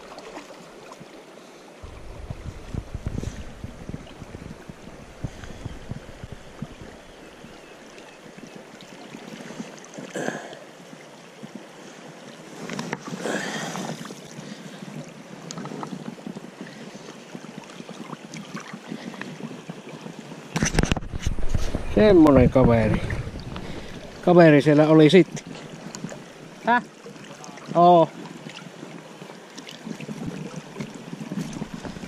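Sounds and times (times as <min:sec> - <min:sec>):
river water rushing: 0:00.0 - 0:15.4, 0:21.2 - 0:32.0
fish splashing: 0:01.8 - 0:08.2, 0:22.9 - 0:24.4
wind rumbling on microphone: 0:01.8 - 0:08.4, 0:12.8 - 0:26.6, 0:29.8 - 0:32.0.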